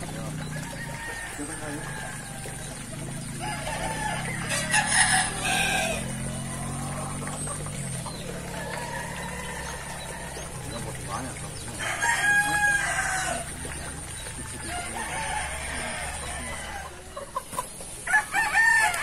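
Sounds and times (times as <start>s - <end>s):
rooster crowing: 0.5s - 2.6s, 3.4s - 6.3s, 11.8s - 13.5s, 14.6s - 17.0s, 18.1s - 19.0s.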